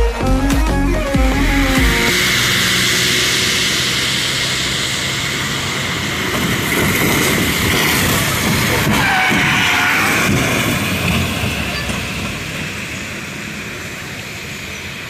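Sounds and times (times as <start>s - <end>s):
tyres hissing through water: 2.1s - 11.0s.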